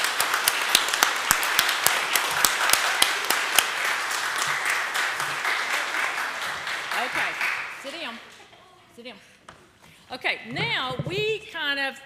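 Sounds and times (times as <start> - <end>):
sharp individual claps: 0.0 - 8.4
congregation applauding: 0.0 - 8.5.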